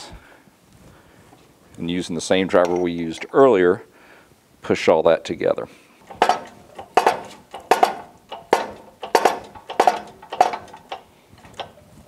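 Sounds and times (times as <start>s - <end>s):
metallic clanks of shop press: 6.0s - 11.8s.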